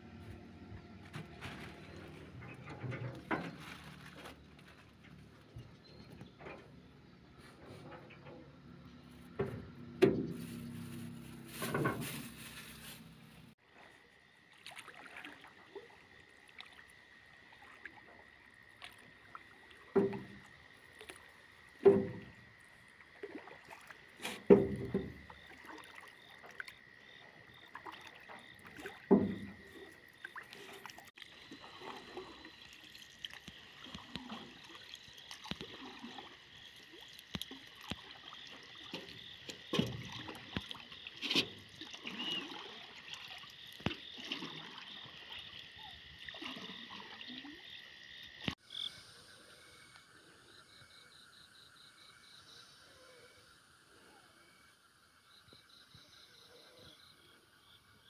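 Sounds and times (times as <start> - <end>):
water splashing and dripping: 9.4 - 48.6.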